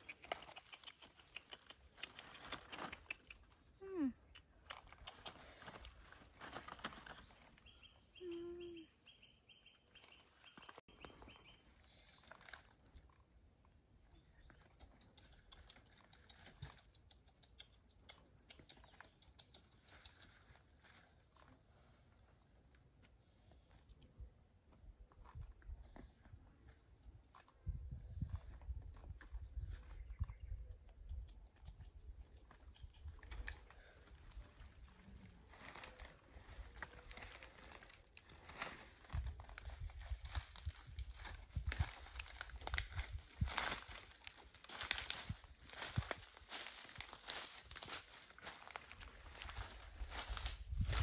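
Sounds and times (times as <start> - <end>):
dry leaves crackling: 5.5 - 7.8, 35.0 - 51.0.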